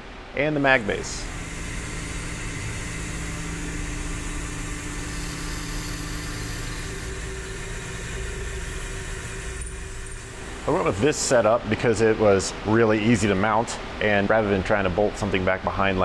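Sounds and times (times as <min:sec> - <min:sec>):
metal lathe running: 0:00.8 - 0:13.4.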